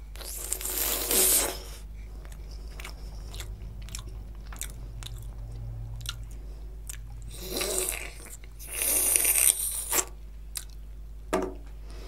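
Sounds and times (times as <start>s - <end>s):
loud hissy slurp: 0.2s - 1.8s, 7.3s - 10.2s
wet eating sound: 0.2s - 10.8s
sharp mouth clicks: 2.2s - 10.8s.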